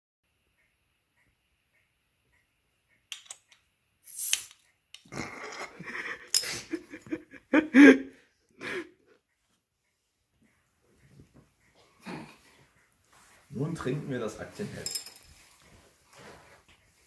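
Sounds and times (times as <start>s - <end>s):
people laughing: 5.2s - 8.9s.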